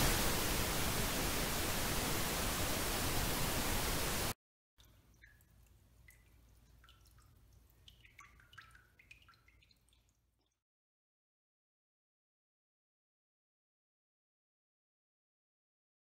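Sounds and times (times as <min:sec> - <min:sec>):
loud static hiss: 0:00.0 - 0:04.4
water drips plinking: 0:04.8 - 0:10.6.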